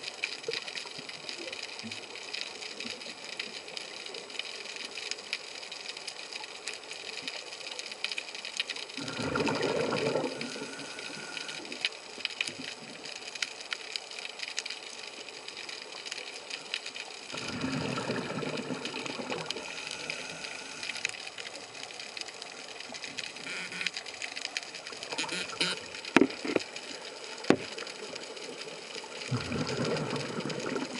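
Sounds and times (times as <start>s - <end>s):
underwater crackle of clicks: 0.0s - 30.9s
exhaled bubbles rushing underwater: 9.0s - 11.8s, 17.3s - 21.0s, 29.1s - 30.9s.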